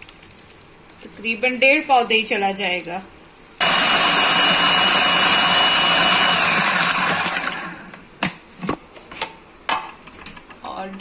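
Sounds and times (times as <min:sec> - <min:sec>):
blender motor whining: 0:03.6 - 0:07.9.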